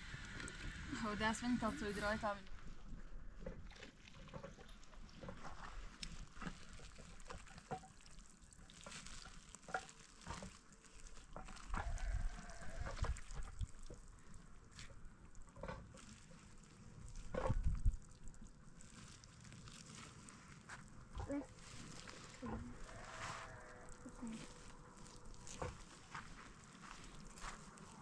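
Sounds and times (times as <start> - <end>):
wet cloth bag rustling: 15.9 - 28.0.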